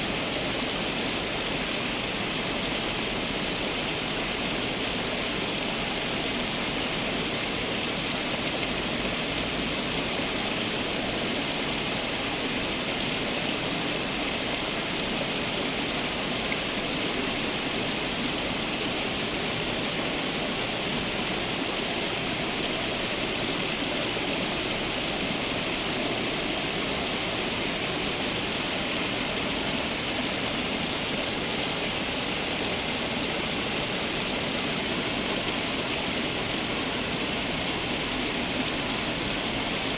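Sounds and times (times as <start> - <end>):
fountain water splashing: 0.0 - 39.9.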